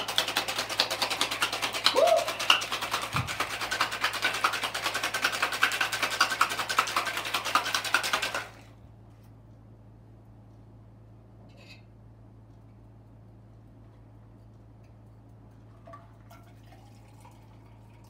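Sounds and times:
ice rattling in cocktail shaker: 0.0s - 8.5s.

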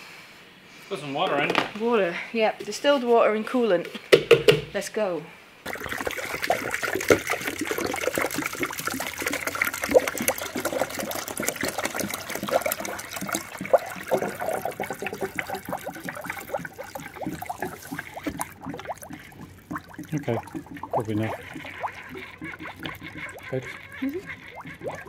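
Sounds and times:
bubbling liquid: 5.6s - 25.0s
liquid pouring into funnel: 5.7s - 25.0s.

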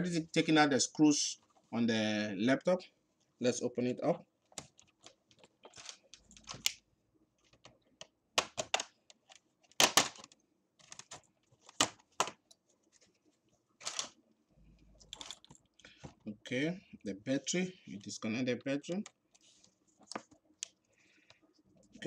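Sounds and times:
plastic clips popping loose: 9.8s - 10.3s.

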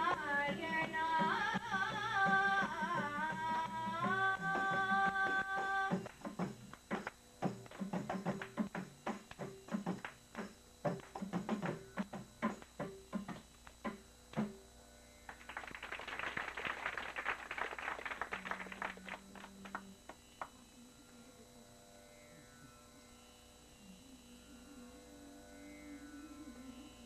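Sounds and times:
mridangam and ganjira strokes: 0.0s - 14.6s
hand-clapping: 3.0s - 14.5s, 15.3s - 20.6s
soft steady drone: 17.8s - 27.0s.

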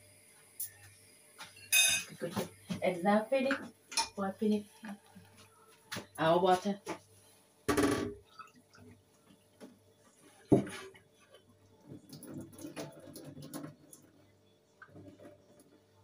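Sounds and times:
water dripping: 8.2s - 9.8s, 11.3s - 15.8s
tap water running into sink: 11.8s - 14.1s.

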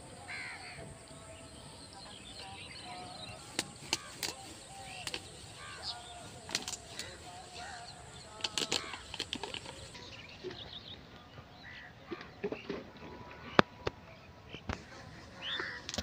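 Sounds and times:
birds chirping and calling: 0.0s - 16.0s
sharp clicks: 3.4s - 10.0s.

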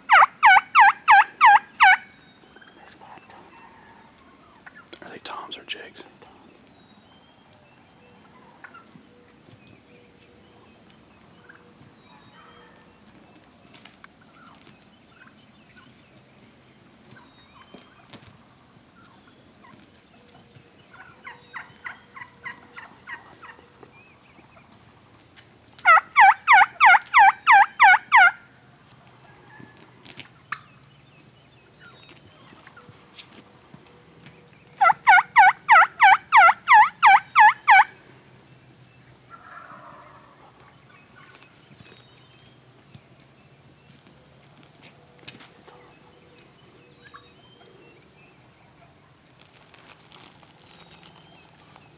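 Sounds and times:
turkey gobbling: 0.1s - 2.7s, 3.5s - 5.0s, 8.2s - 9.5s, 11.1s - 13.2s, 17.1s - 30.7s, 33.8s - 38.0s, 39.0s - 42.0s, 47.0s - 47.8s.

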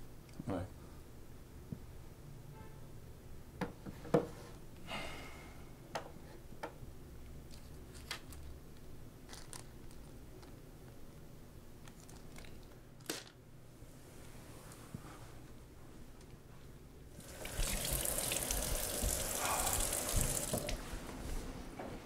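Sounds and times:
plastic bag crinkling: 9.2s - 10.5s.

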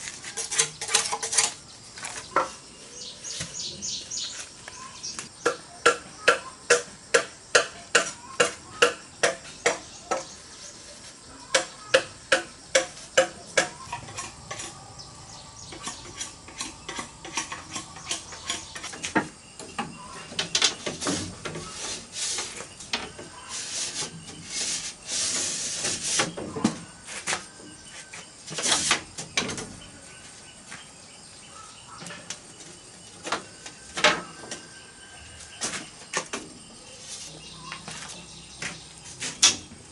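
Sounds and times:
bamboo strips scraping and rattling: 0.0s - 29.8s, 35.4s - 39.9s
sharp knocks: 11.5s - 14.6s.

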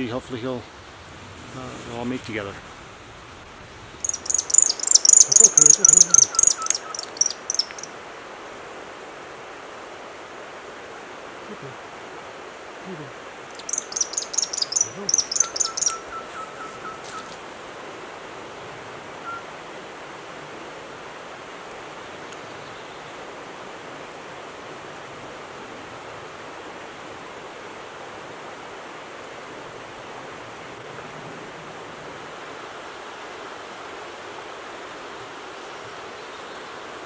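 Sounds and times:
rushing outdoor background hiss: 0.0s - 37.0s
rapid high chirps: 4.0s - 7.9s, 13.5s - 17.3s
thin whistled tone: 13.8s - 17.3s.

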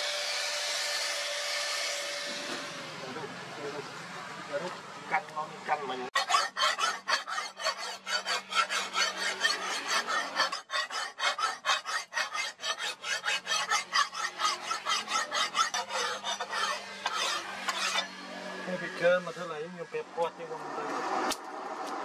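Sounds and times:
file rasping on steel blade: 6.2s - 19.5s.

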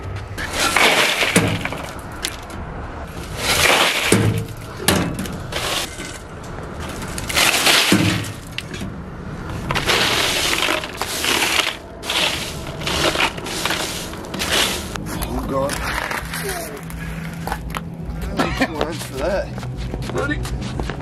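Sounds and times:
ice crunching in a cooler: 0.4s - 2.0s, 3.2s - 4.6s, 6.9s - 8.7s, 9.6s - 17.4s.

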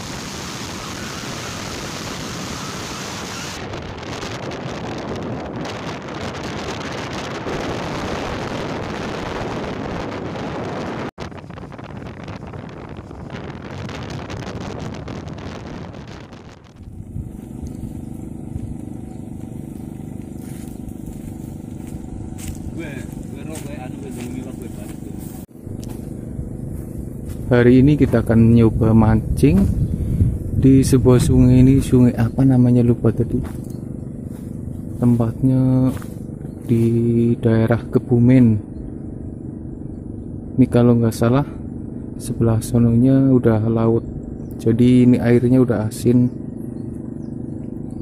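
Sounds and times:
motorcycle engine: 0.0s - 48.0s
wind rushing over microphone: 0.0s - 48.0s
low steady hum: 11.2s - 48.0s.

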